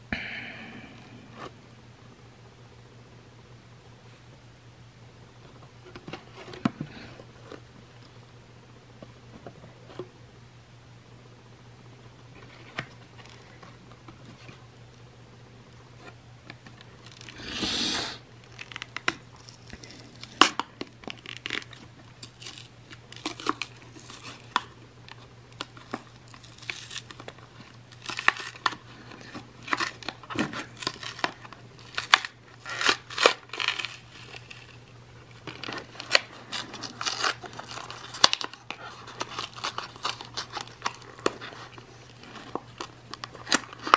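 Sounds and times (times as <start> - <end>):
card tearing: 16.9 - 24.8, 25.6 - 43.9
plastic packaging crinkling: 18.4 - 43.9.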